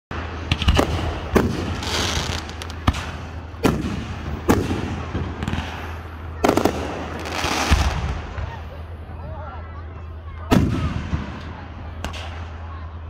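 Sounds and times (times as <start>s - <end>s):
fireworks bangs: 0.2s - 8.6s, 10.5s - 12.7s
fireworks crackle and hiss: 0.4s - 8.5s.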